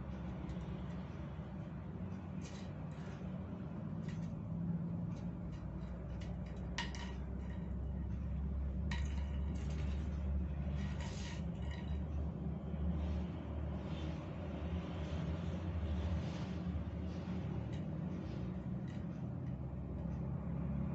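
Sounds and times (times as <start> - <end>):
steady low hum: 0.0 - 20.9
straw clicking on tile floor: 0.1 - 12.8.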